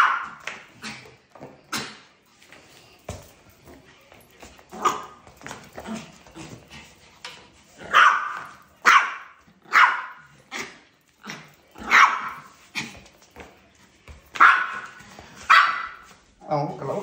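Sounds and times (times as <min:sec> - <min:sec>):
small dog barking: 0:00.0 - 0:00.4, 0:07.9 - 0:10.3, 0:11.8 - 0:12.5, 0:14.4 - 0:16.1.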